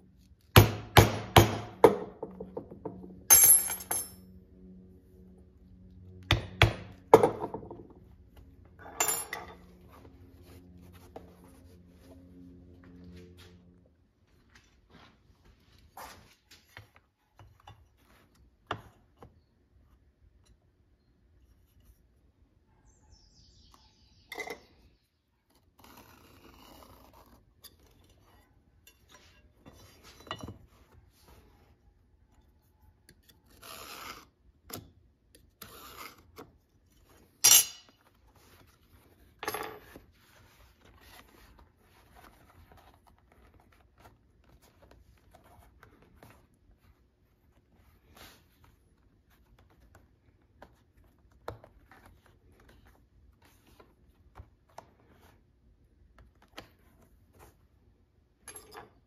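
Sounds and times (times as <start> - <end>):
metal tools clinking on bench: 3.3 - 4.2, 8.8 - 9.7, 37.4 - 38.0, 58.4 - 59.0.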